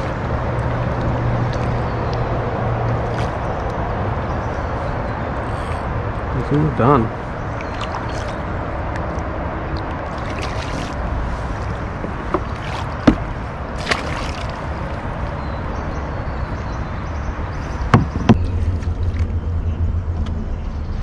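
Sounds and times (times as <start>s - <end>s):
water sloshing and splashing: 0.0s - 19.5s
sharp knocks: 12.0s - 13.3s, 17.9s - 18.5s.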